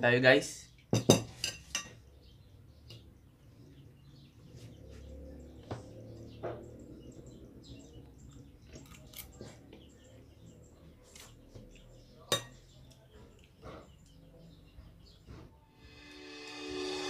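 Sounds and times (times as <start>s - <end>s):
cutlery clinking on a plate: 0.9s - 2.0s, 12.3s - 13.9s.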